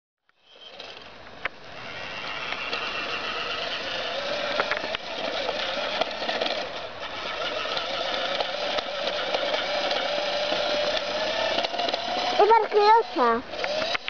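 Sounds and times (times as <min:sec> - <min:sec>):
toy truck motor whirring: 0:00.3 - 0:14.0
sharp clicks: 0:13.6 - 0:14.0.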